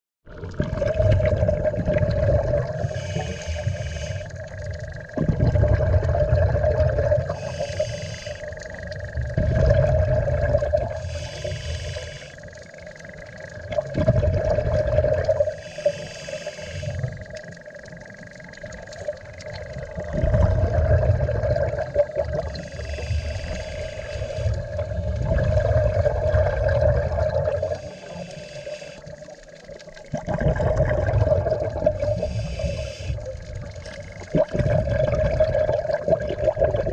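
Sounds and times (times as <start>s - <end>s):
exhaled bubbles rumbling: 0.3s - 36.9s
regulator inhale hiss: 2.8s - 4.4s, 7.3s - 8.8s, 10.9s - 12.6s, 15.5s - 17.3s, 22.6s - 24.9s, 27.6s - 29.3s, 32.0s - 33.3s.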